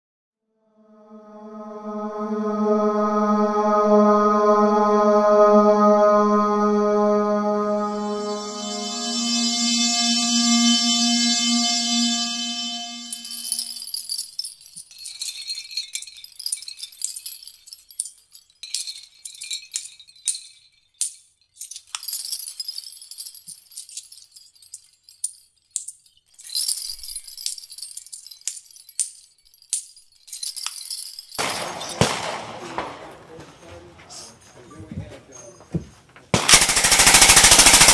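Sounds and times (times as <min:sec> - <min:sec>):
metal cartridge belts clinking: 0:13.2 - 0:32.0, 0:36.5 - 0:37.9.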